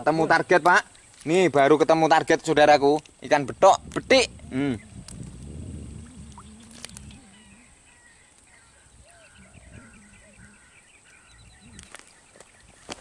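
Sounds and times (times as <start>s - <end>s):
low drone: 4.3s - 7.9s
animal chirping: 6.0s - 11.9s.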